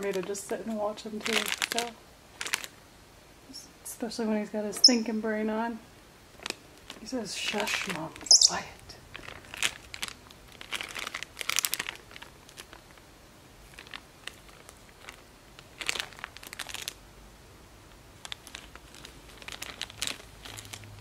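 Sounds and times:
plastic wrapping crinkling: 0.0s - 2.8s, 6.3s - 17.0s, 18.2s - 21.0s.

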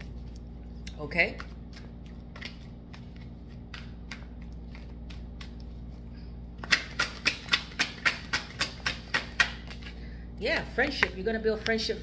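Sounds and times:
cards being shuffled: 1.4s - 6.0s.

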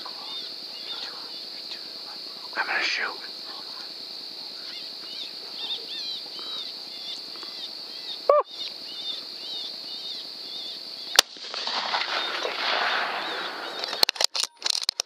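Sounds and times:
small birds chirping: 0.0s - 11.2s
steady high hiss: 0.0s - 14.3s
rifle shot: 11.2s - 14.1s.

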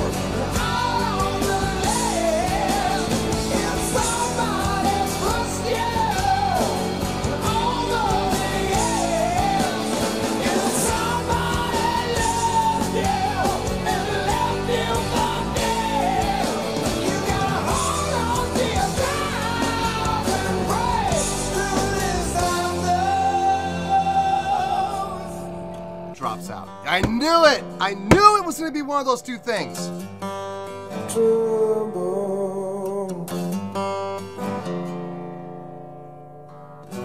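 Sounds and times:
man singing: 26.9s - 29.9s.

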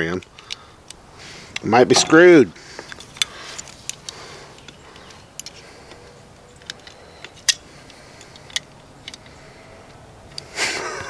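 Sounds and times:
small metal clicks and taps: 2.8s - 6.0s, 6.6s - 10.5s.

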